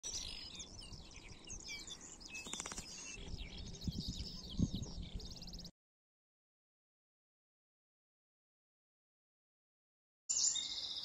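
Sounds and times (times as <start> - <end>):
songbirds chirping: 0.0 - 5.7, 10.3 - 11.0.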